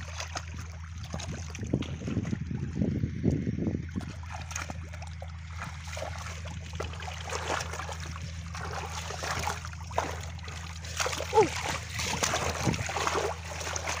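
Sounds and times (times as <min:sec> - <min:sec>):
hands splashing in muddy water: 0:00.0 - 0:02.7, 0:03.9 - 0:14.0
steady low hum: 0:00.0 - 0:14.0
water trickling: 0:03.8 - 0:14.0.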